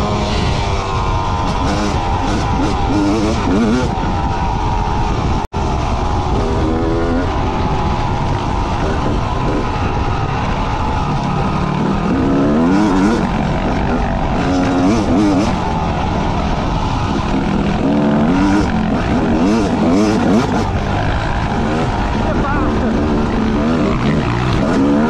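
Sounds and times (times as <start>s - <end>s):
motorcycle engine revving: 0.0s - 25.0s
steady rushing noise: 0.0s - 25.0s.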